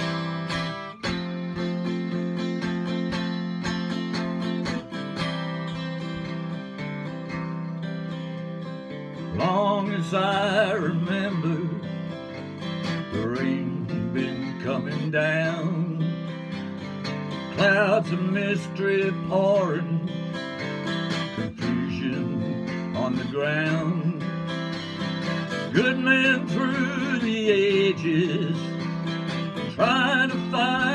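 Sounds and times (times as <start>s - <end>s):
acoustic guitar strumming: 0.0s - 30.9s
wordless vocal melody: 9.2s - 16.6s, 21.2s - 30.9s.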